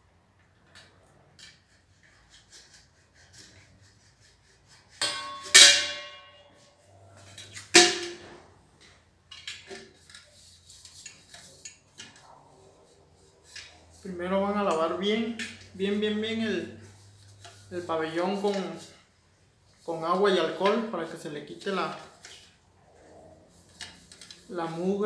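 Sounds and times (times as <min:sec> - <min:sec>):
metallic trombone clanks: 0:05.0 - 0:06.6, 0:07.6 - 0:08.4.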